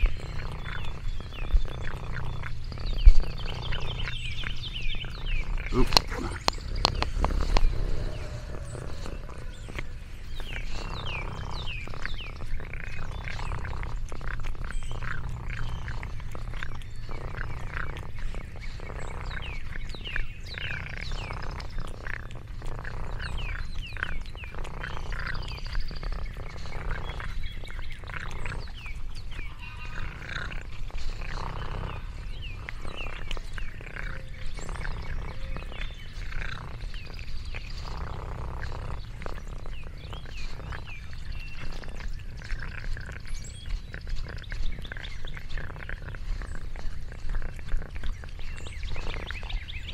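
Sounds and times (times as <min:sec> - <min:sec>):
birds chirping: 0:00.0 - 0:49.9
low rumble: 0:00.1 - 0:11.1.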